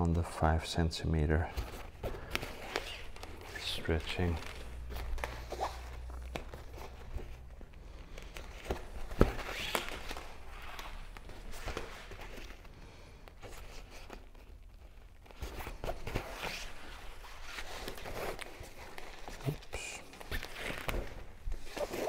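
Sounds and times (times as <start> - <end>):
fabric rustling: 1.3 - 22.0.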